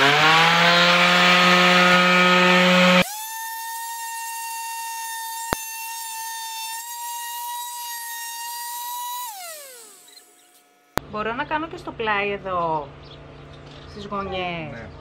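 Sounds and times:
high-pitched motor whine: 0:00.0 - 0:11.0
orbital sander on wood: 0:00.0 - 0:11.0.

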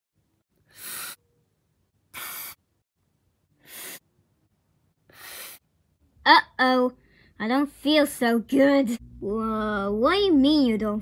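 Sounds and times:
person breathing heavily: 0:00.6 - 0:01.2, 0:02.1 - 0:02.6, 0:03.6 - 0:04.0, 0:05.1 - 0:05.6.

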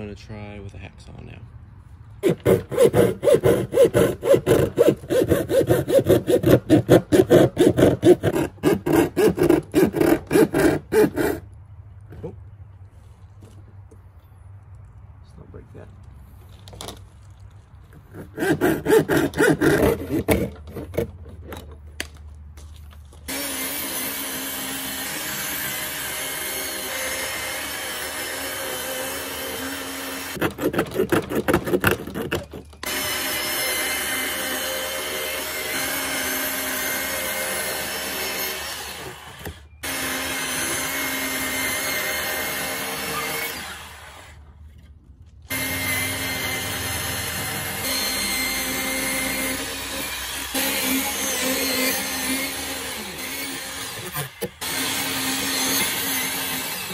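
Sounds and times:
bandsaw running: 0:02.2 - 0:11.4, 0:18.1 - 0:21.1, 0:23.3 - 0:44.4, 0:45.5 - 0:56.9
hand saw cutting plastic: 0:02.2 - 0:11.5, 0:17.9 - 0:22.1, 0:23.3 - 0:44.4, 0:45.5 - 0:56.9.

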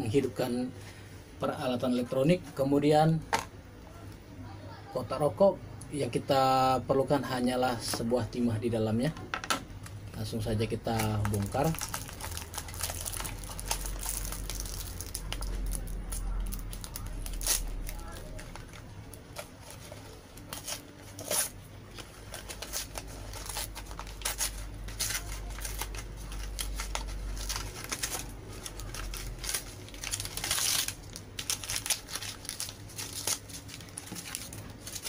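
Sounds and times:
foil crinkling: 0:10.2 - 0:35.0
cardboard pack tearing: 0:10.9 - 0:19.8, 0:20.4 - 0:35.0.

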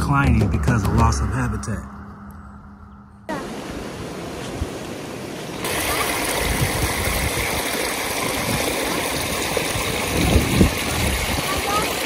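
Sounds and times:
creek water rushing over rocks: 0:03.3 - 0:12.0.

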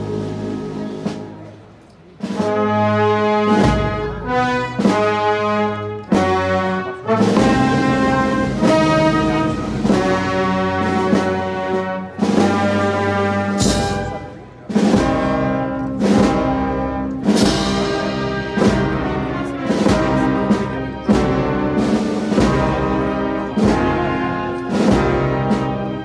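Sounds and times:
brass band playing march: 0:00.0 - 0:26.0
drum strikes: 0:12.2 - 0:25.8.

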